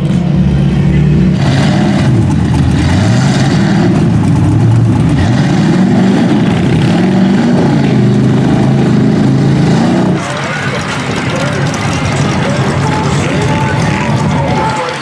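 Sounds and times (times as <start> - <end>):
tires churning through mud: 0.0 - 15.0
truck engine revving: 0.0 - 15.0.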